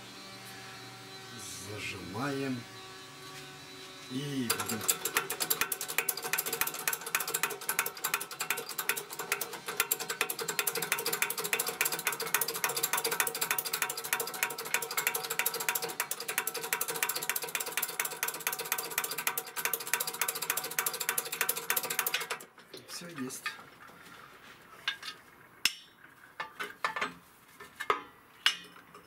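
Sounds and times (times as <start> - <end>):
hydraulic press clicking rattle: 4.5 - 22.5.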